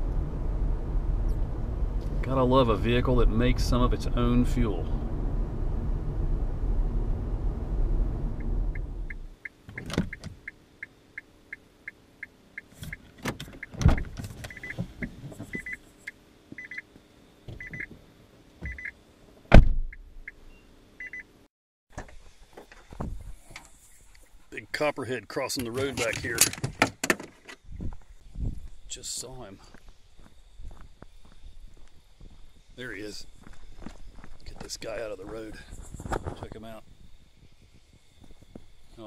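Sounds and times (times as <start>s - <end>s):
road and tyre noise: 0.0s - 24.6s
car warning chime beeping: 8.4s - 13.0s, 14.5s - 14.8s, 15.5s - 15.8s, 16.6s - 16.8s, 17.6s - 17.9s, 18.7s - 19.0s, 19.9s - 21.3s
car door clunks and thuds: 9.1s - 10.4s, 12.8s - 15.6s, 18.6s - 18.9s, 19.5s - 20.0s, 22.8s - 23.3s.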